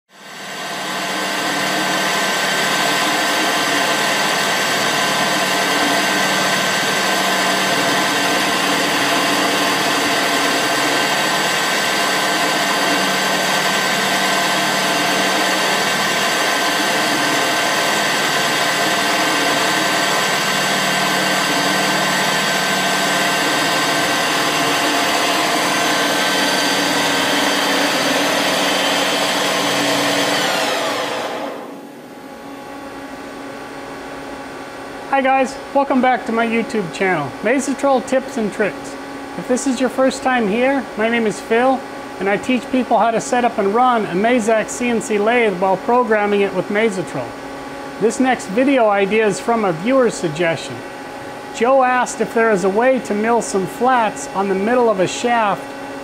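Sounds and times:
lathe machine whine: 0.1s - 56.0s.

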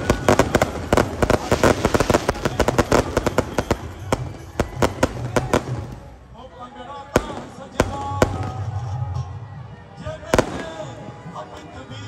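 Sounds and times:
firecrackers banging: 0.0s - 6.2s, 7.1s - 9.2s.

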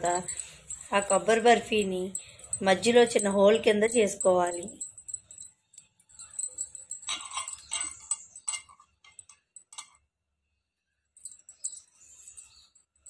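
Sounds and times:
light metallic jingling and clinking: 0.0s - 10.2s, 11.0s - 13.0s.

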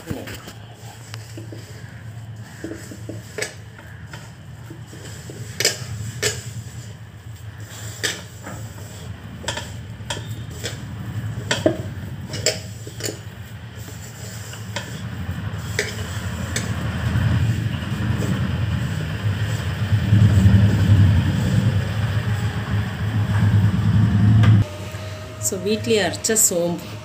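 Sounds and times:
hand stirring powder in a bowl: 0.0s - 22.5s
steady low hum: 0.0s - 27.0s
clicks and scrapes against bowl: 0.2s - 6.6s.

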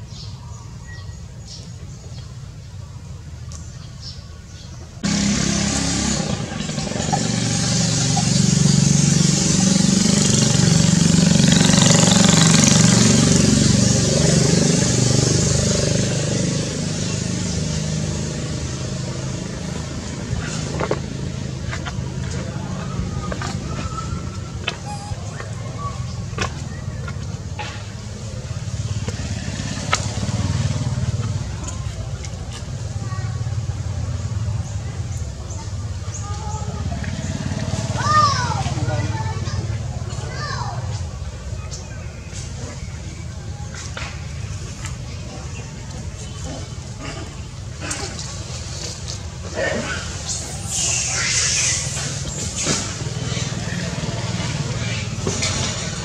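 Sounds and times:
loud vehicle engine noise: 4.8s - 56.0s
faint bird chirps: 23.1s - 27.3s.

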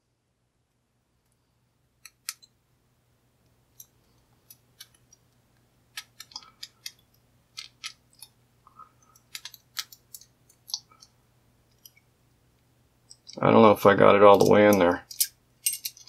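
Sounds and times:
metallic clicks of lock picking: 9.2s - 11.1s.

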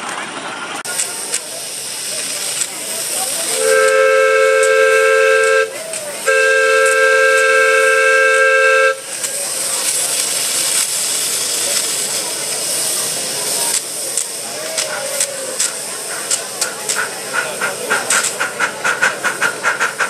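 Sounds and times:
steady hiss of steam: 0.9s - 20.0s
steam whistle blasts: 3.5s - 9.2s.

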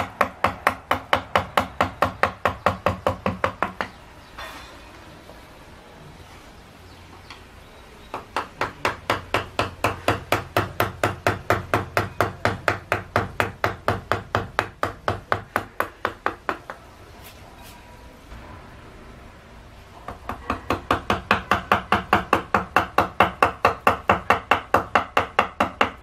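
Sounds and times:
mallet tapping chisel into wood: 20.1s - 26.0s.

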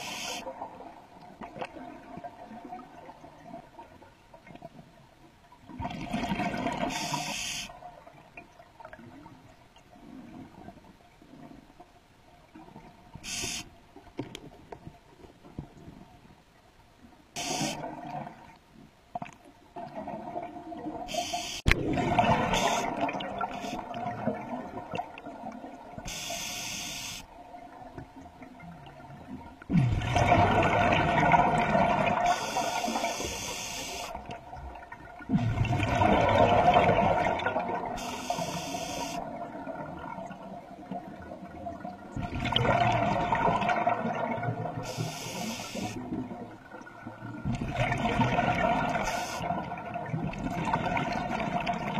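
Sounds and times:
regulator hiss on inhale: 0.0s - 0.5s, 6.9s - 7.7s, 13.2s - 13.7s, 17.4s - 17.8s, 21.1s - 21.7s, 26.1s - 27.3s, 32.3s - 34.2s, 38.0s - 39.2s, 44.8s - 46.0s, 49.0s - 49.5s
exhaled bubbles rushing: 21.7s - 25.9s, 29.7s - 32.3s, 34.5s - 38.0s, 41.6s - 44.8s, 47.2s - 51.9s.

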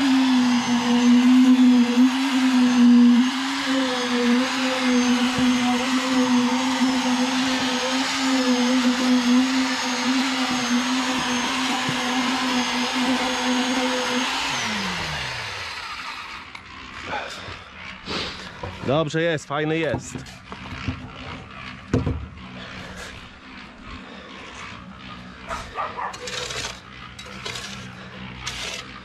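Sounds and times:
concrete vibrator motor whine: 0.0s - 29.0s.

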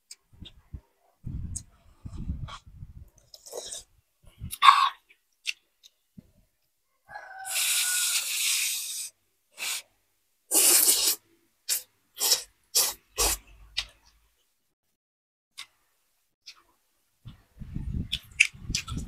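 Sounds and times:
person slurping noodles: 3.3s - 3.9s, 7.5s - 9.8s, 10.5s - 13.4s.

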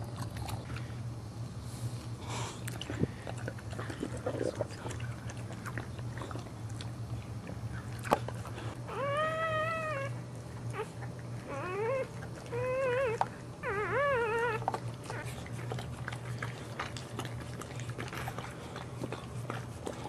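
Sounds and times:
steady low hum: 0.0s - 20.0s
puppy crying squeals: 8.9s - 10.9s, 11.5s - 15.3s.

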